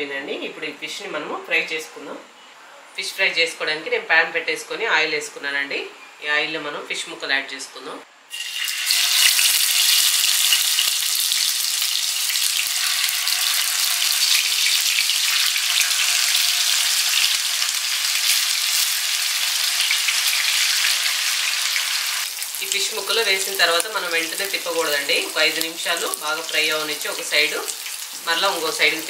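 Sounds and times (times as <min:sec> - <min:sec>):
fish sizzling in hot oil: 0:08.3 - 0:29.0.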